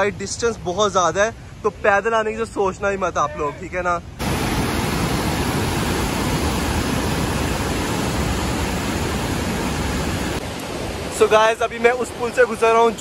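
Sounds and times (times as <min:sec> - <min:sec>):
river rushing over boulders: 0:04.2 - 0:13.0.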